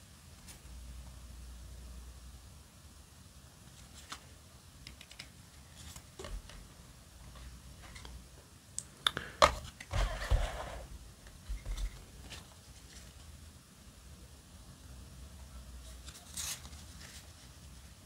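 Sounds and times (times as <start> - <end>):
cards sliding rustle: 3.6 - 4.3, 4.9 - 8.2, 9.5 - 13.2, 15.9 - 17.8.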